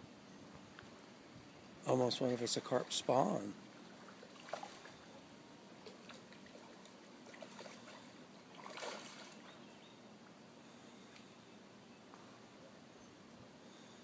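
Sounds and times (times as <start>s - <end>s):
fish splashing in shallow water: 3.8s - 5.1s, 5.8s - 9.6s.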